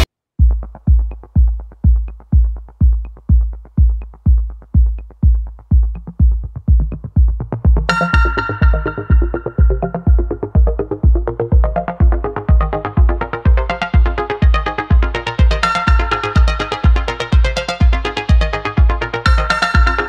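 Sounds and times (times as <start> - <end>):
electronic dance music: 0.0 - 20.0
kick drum beat: 0.0 - 20.0
synth layers: 7.8 - 20.0.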